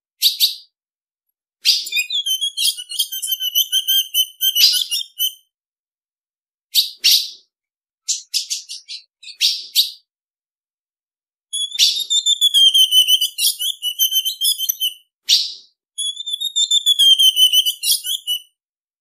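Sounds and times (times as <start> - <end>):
bird chip notes: 1.9 - 5.4
thin steady whistle: 1.9 - 5.4, 11.6 - 15.0, 16.0 - 18.5.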